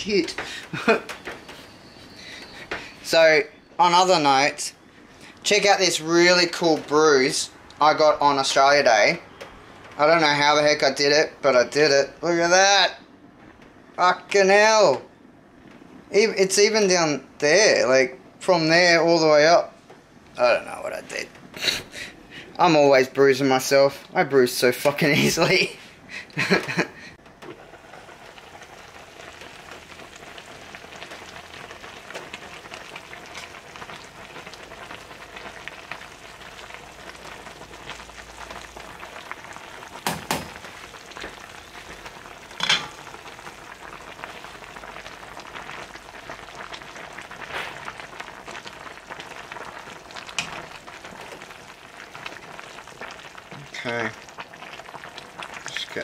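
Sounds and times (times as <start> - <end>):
soup simmering and bubbling: 0.0 - 3.1, 26.4 - 56.0.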